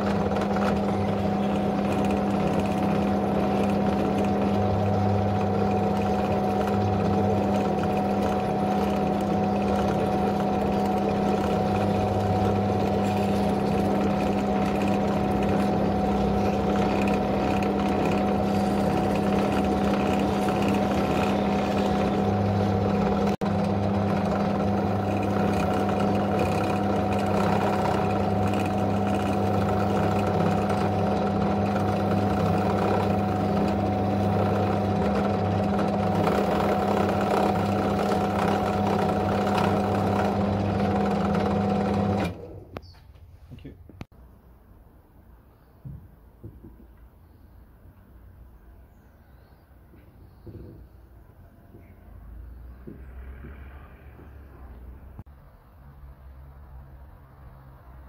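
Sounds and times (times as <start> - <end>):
drill motor humming: 0.0 - 42.8.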